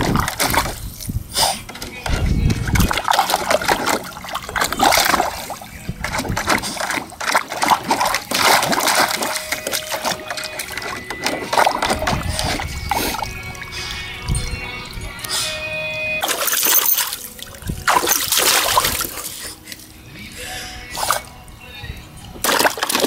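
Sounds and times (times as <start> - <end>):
dog splashing in water: 0.0 - 1.0, 2.1 - 14.1, 16.2 - 19.6, 22.4 - 23.0.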